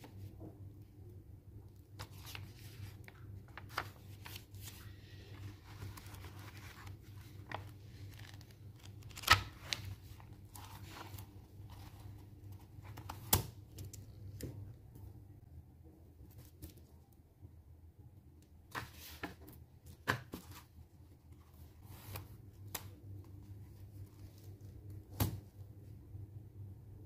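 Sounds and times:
paper pages rustling: 0:02.0 - 0:14.0.

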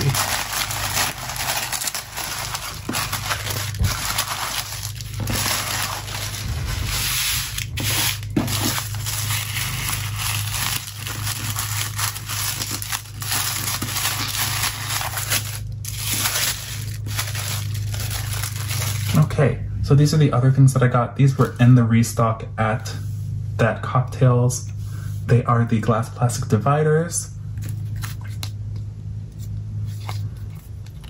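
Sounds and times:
tissue paper rustling: 0:00.0 - 0:19.2.

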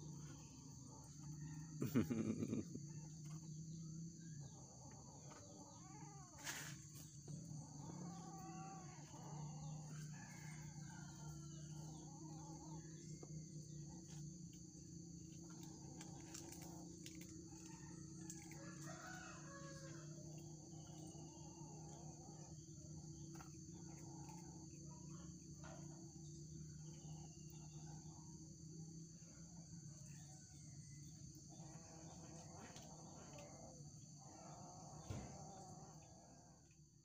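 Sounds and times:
high insect drone: 0:00.0 - 0:37.0
faint chicken calls: 0:00.2 - 0:03.5, 0:16.8 - 0:21.9.

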